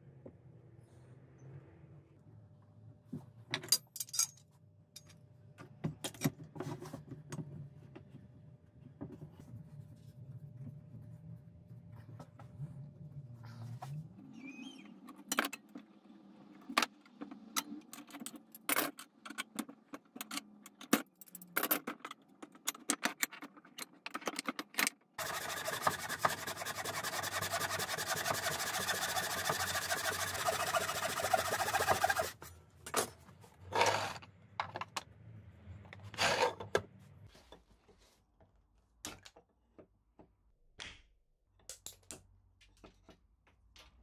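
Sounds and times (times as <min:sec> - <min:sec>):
tools clicking and knocking: 0:16.8 - 0:25.1
hand saw cutting wood: 0:25.2 - 0:32.4
loud scraping bursts: 0:25.2 - 0:32.4.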